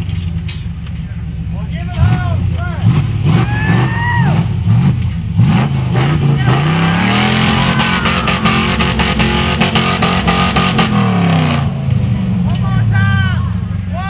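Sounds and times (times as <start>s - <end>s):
truck engine revving: 1.8s - 13.9s.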